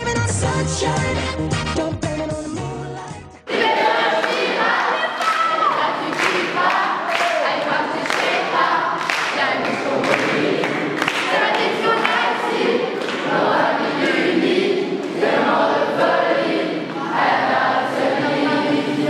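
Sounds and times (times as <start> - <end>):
crowd singing together: 3.4 - 19.0
sharp claps on the beat: 4.2 - 4.6, 5.2 - 13.4.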